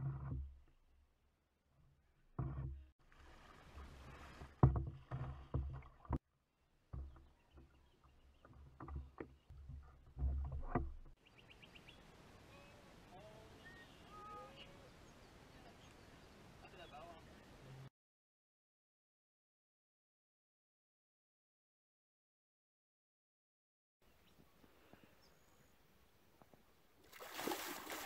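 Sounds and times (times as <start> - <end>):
paddle knocking on plastic hull: 2.4 - 2.8, 3.8 - 6.2, 6.8 - 7.8, 8.4 - 11.1
water sloshing: 2.4 - 6.2, 27.0 - 28.0.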